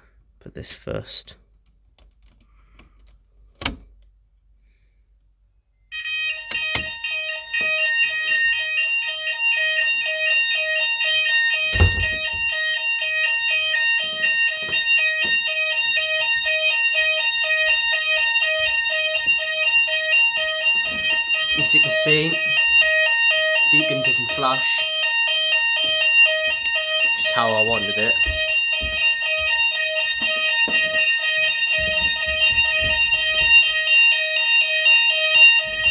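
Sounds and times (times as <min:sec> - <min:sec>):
electronic two-tone fire alarm: 0:05.6 - 0:35.9
thump: 0:11.8 - 0:12.4.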